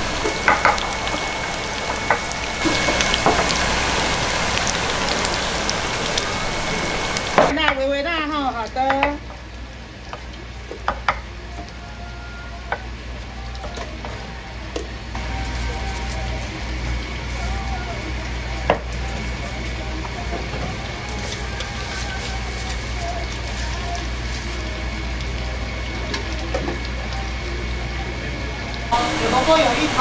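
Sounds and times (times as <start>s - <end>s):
food sizzling in frying: 0.0s - 30.0s.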